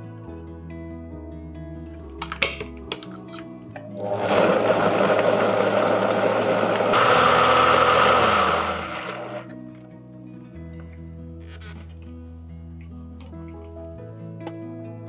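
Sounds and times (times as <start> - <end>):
blender running: 3.9 - 9.5.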